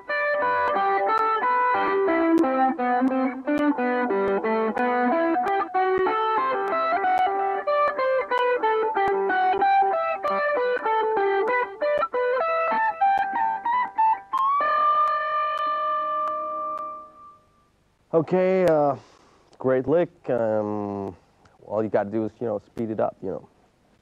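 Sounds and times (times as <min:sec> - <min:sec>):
electric guitar lead lick: 0:00.0 - 0:17.6.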